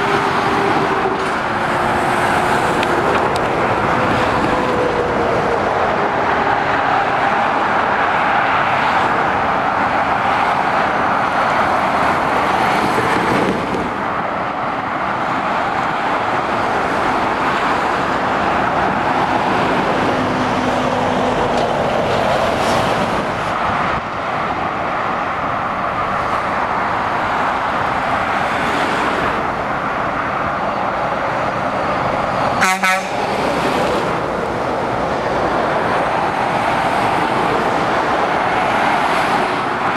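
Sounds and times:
motorway traffic passing: 0:00.0 - 0:39.9
car horn toot: 0:32.6 - 0:33.3.

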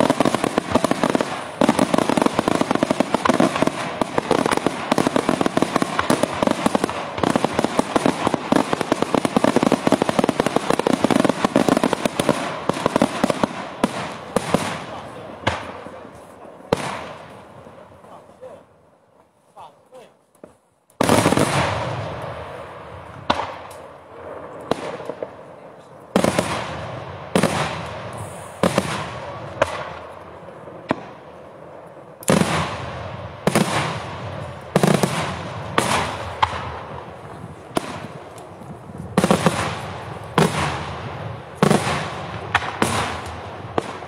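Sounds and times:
firework shells bursting: 0:00.0 - 0:15.8.

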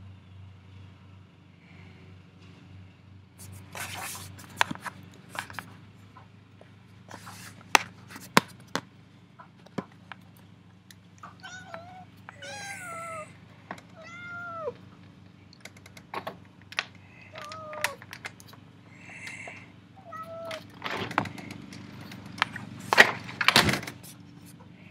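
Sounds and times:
cat meowing: 0:11.2 - 0:14.8, 0:17.2 - 0:18.1, 0:19.1 - 0:20.8.

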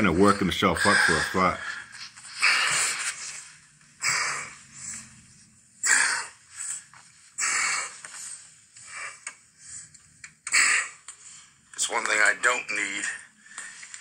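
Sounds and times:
man breathing heavily: 0:13.3 - 0:14.0.

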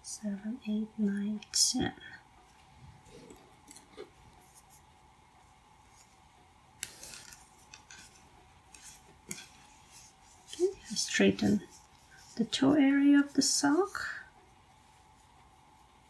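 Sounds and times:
yarn handling: 0:05.8 - 0:16.0.

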